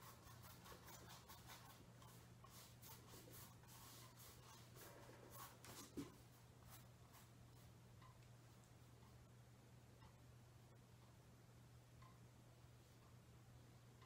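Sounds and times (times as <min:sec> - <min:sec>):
paintbrush strokes on canvas: 0:00.0 - 0:07.8
low steady hum: 0:00.0 - 0:14.0.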